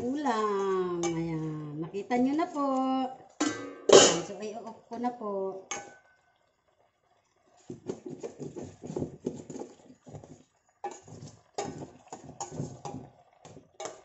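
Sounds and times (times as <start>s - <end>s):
metal spoon scraping a pan: 7.9s - 13.1s, 13.8s - 14.0s.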